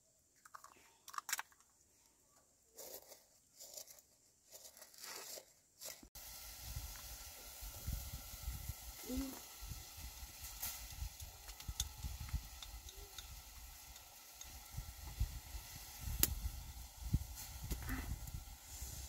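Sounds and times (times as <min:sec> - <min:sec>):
steady hiss: 0:05.8 - 0:19.0.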